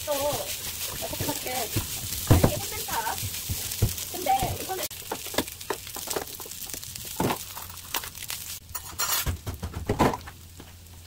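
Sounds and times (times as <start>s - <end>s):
spatula scraping frying pan: 0.1s - 4.9s.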